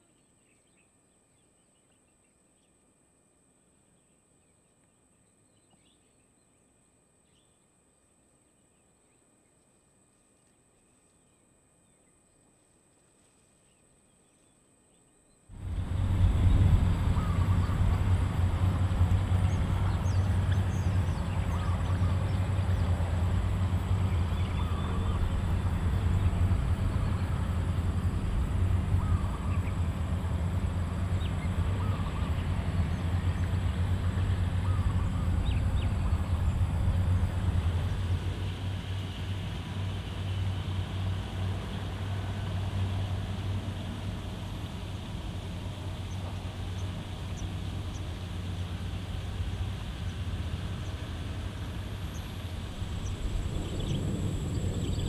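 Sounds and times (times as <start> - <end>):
distant engine machinery drone: 15.5 - 55.0.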